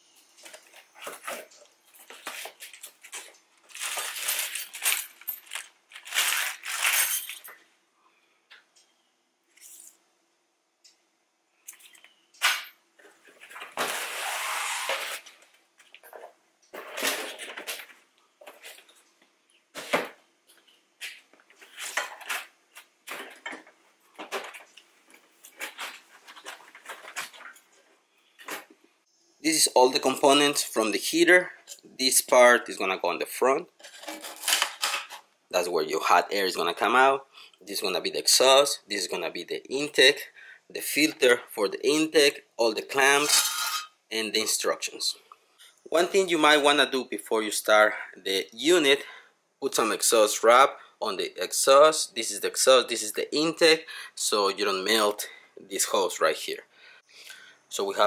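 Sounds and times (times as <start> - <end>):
cardboard and plastic rustling: 0.4 - 7.4, 13.0 - 19.0, 21.0 - 28.8.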